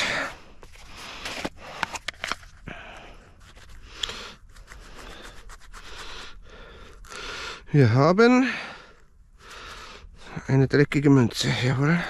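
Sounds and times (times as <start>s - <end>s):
close breathing and sniffing: 0.0s - 10.4s
fingers handling a dirty coin: 0.6s - 7.2s.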